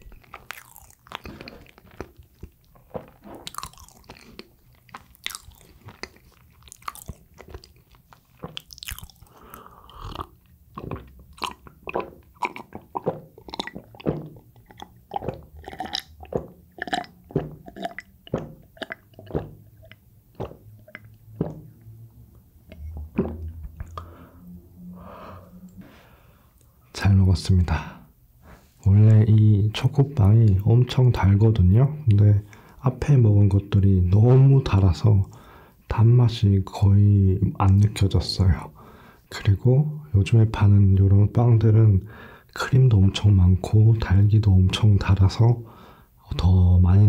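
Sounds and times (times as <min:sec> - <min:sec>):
chewing with wet mouth smacks: 0:00.0 - 0:21.2.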